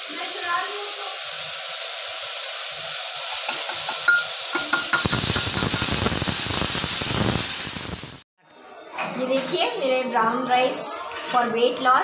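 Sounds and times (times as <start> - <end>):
vegetables sizzling in a pan: 0.0 - 8.3
metal spoon clinking on pan: 3.4 - 5.6.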